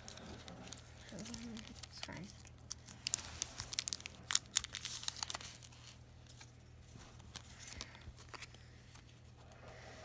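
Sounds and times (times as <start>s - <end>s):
plastic wrapping crinkling: 0.0s - 8.6s.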